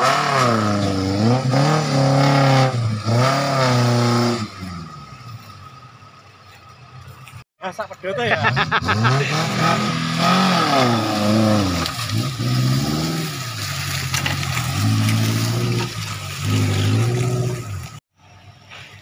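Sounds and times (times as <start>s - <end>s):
engine revving under load: 0.0s - 5.0s, 8.4s - 18.0s.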